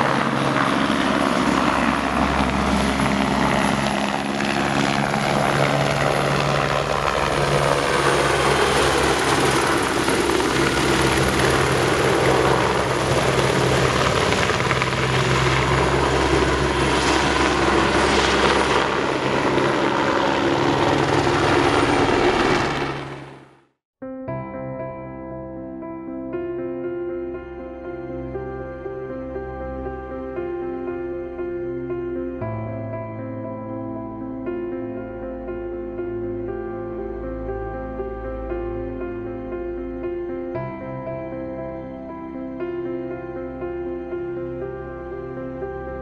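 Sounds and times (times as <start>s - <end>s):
helicopter rotor and engine: 0.0s - 23.6s.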